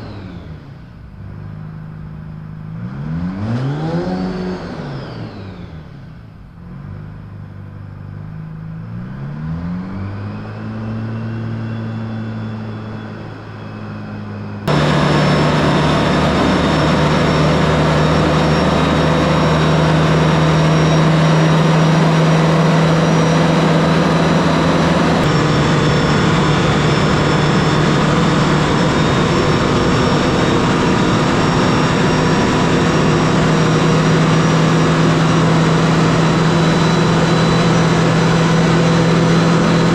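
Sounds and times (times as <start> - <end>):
diesel engine revving: 0.0 - 39.9.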